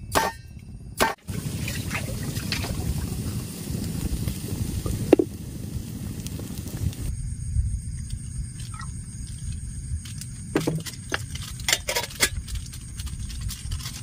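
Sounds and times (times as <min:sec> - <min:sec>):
water trickling and lapping: 0:01.2 - 0:07.1.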